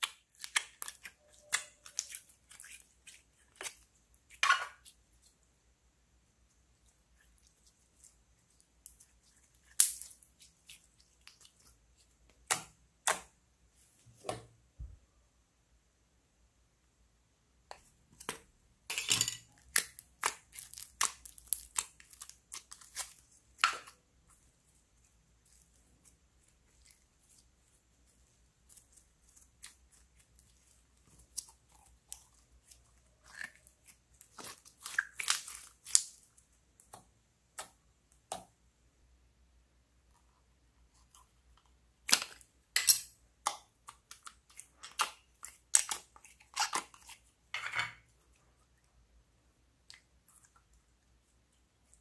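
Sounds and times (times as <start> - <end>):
slime crackling and popping: 8.8 - 11.6, 19.5 - 24.0, 28.6 - 37.0.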